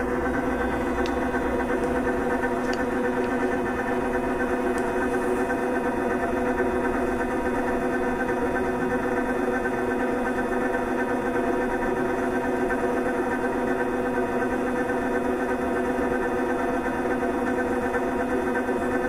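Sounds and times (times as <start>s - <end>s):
electric motor humming: 0.0s - 8.1s.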